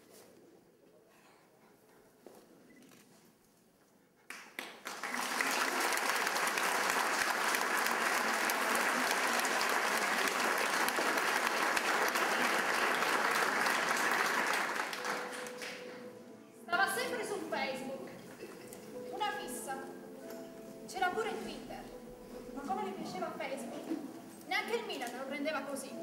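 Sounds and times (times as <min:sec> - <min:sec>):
audience applauding: 0:04.3 - 0:16.0.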